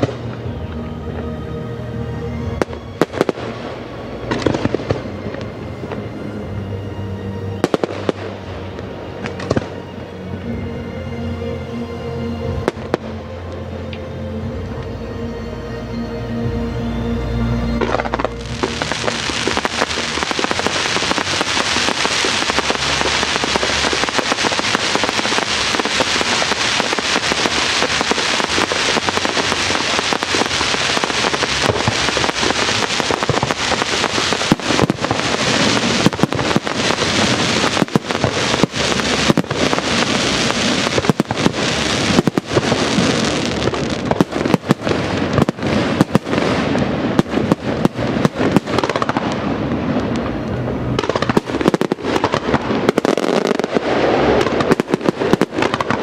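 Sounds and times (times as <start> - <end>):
fireworks crackling and popping: 0.0 - 1.4, 2.4 - 6.7, 7.6 - 10.6, 17.8 - 56.0
fireworks sharp bangs: 18.1 - 56.0.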